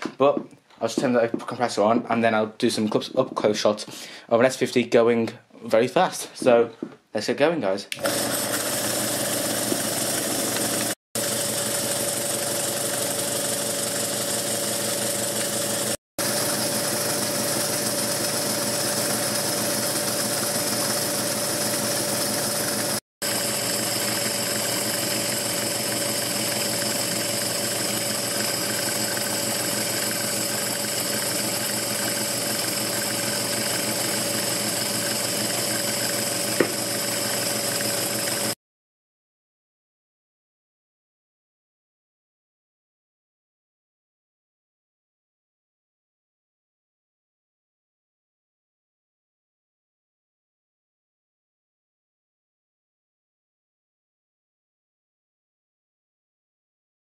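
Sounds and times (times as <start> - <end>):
model steam engine running fast: 8.0 - 38.6.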